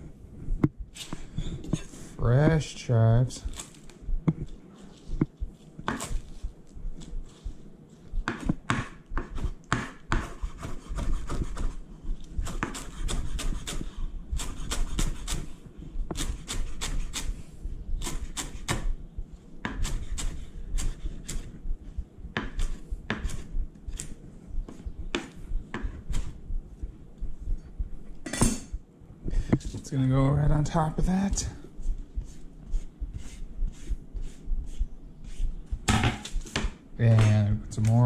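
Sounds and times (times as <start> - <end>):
knife chopping on wooden board: 5.2 - 6.2, 8.2 - 11.8, 12.4 - 15.5, 22.3 - 24.1, 24.7 - 26.3.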